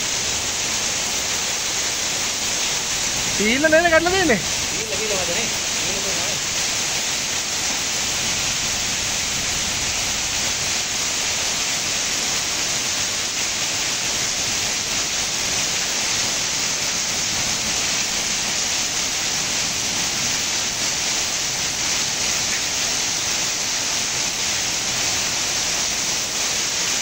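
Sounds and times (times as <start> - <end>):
heavy rain pouring off roof: 0.0 - 27.0
water splashing onto ground: 0.0 - 27.0.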